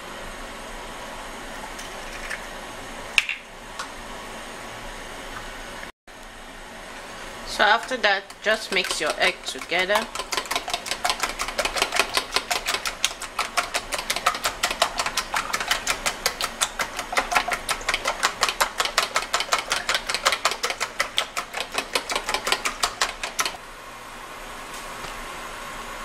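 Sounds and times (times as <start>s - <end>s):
eggs beaten in plastic tub: 7.4s - 23.6s.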